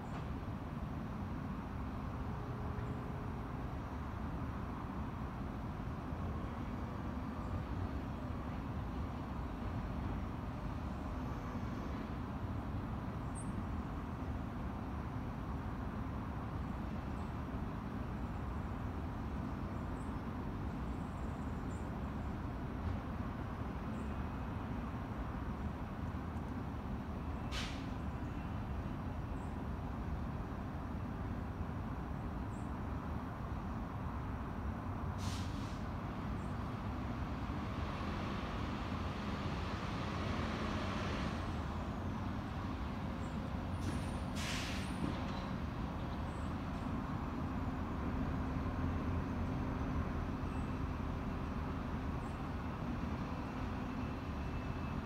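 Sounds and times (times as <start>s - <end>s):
air brake hisses: 27.5s - 28.0s, 35.2s - 35.9s, 43.8s - 45.2s.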